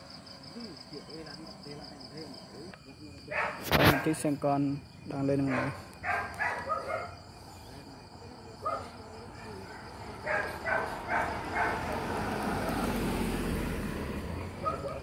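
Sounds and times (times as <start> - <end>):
insect chirr: 0.0 - 15.0
car engine and tyre noise: 9.8 - 15.0.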